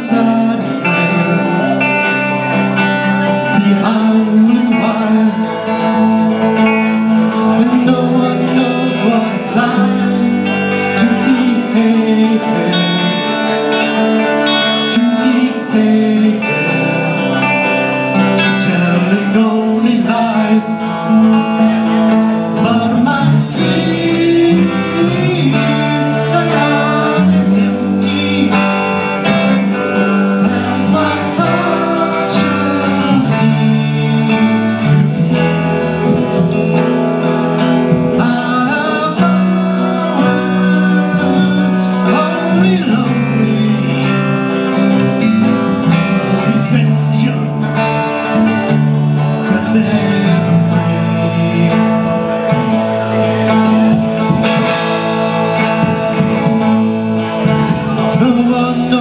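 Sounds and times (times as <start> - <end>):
bass guitar: 0.0 - 59.0
electric guitars: 0.0 - 59.0
drum kit with cymbal hits: 50.0 - 59.0.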